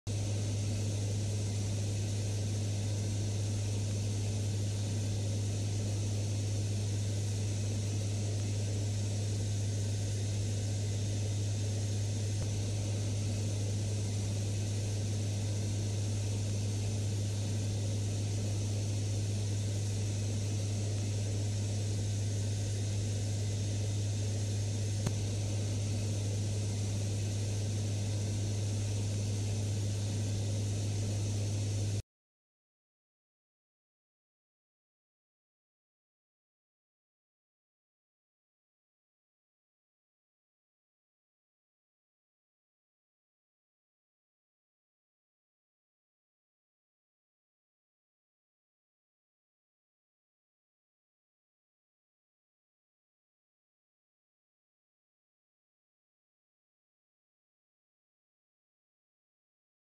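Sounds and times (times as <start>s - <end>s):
turboprop engines droning: 0.1s - 32.0s.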